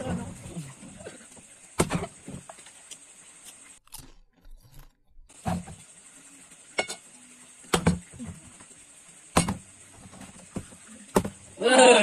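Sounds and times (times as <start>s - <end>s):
plastic bottle landing on floor: 10.2s - 11.4s.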